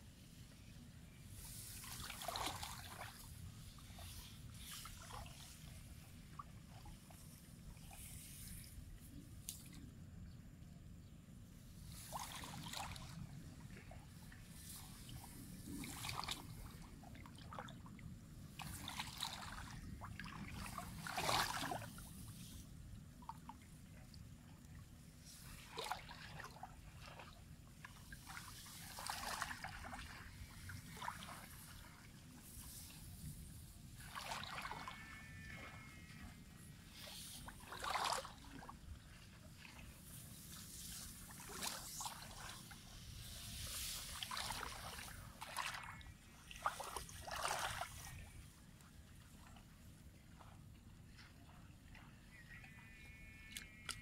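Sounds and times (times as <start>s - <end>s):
wading through muddy water: 0.3s - 9.8s, 11.6s - 54.0s
plants and net swishing: 40.4s - 45.7s.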